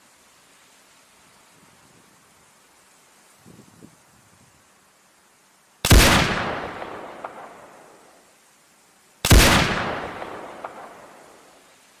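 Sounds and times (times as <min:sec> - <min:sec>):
rifle shot: 0:05.8 - 0:07.7, 0:09.2 - 0:11.3
gunshot echo: 0:05.9 - 0:07.7, 0:09.3 - 0:11.3.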